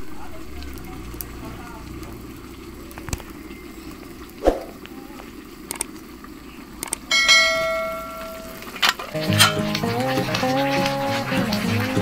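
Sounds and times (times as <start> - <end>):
pot simmering: 0.0 - 12.0
stove hiss: 0.0 - 12.0
music: 9.2 - 12.0.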